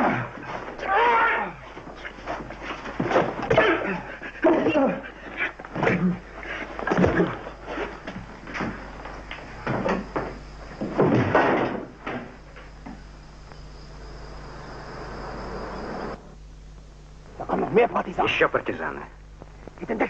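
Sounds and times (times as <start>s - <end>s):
bumps and scuffling: 0.3s - 12.8s
steady hiss: 4.1s - 20.0s.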